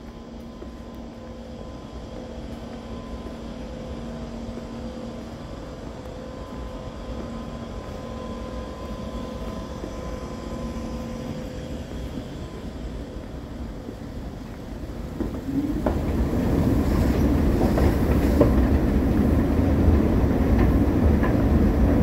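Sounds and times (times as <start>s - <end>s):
faint hum and whine: 0.0s - 14.6s.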